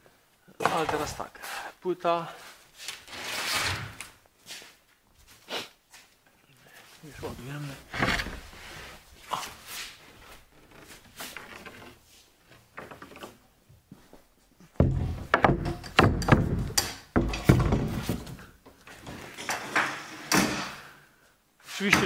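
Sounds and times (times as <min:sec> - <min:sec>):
board scraping and handling: 0:02.8 - 0:04.1, 0:07.4 - 0:13.4, 0:14.8 - 0:20.8
wooden knocks and thumps: 0:07.8 - 0:08.6, 0:10.5 - 0:13.8, 0:14.7 - 0:20.7.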